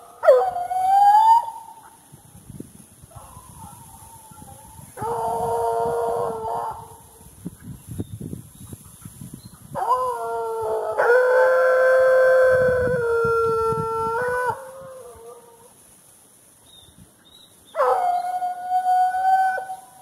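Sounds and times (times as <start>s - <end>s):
dog howling: 5.0s - 7.0s.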